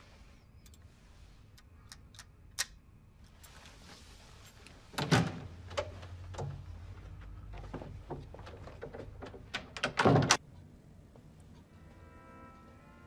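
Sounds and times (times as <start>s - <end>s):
door handle and latch clacking: 8.8s - 10.4s.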